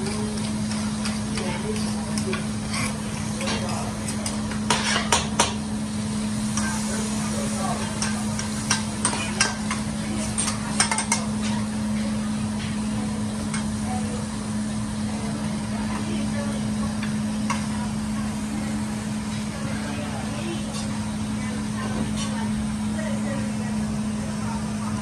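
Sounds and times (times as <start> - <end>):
spatula clinking on griddle: 0.0 - 5.6, 7.8 - 11.6
steady low hum: 0.0 - 25.0.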